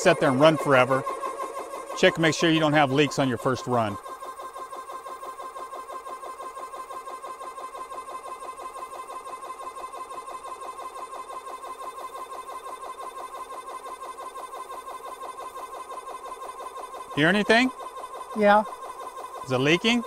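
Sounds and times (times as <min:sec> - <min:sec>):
air compressor pulsing: 0:00.0 - 0:20.0.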